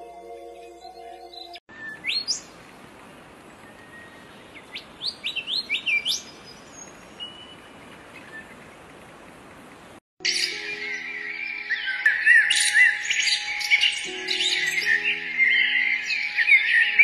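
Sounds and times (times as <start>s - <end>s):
bird whistling song: 0.8s - 2.5s, 3.6s - 8.6s, 10.2s - 17.0s.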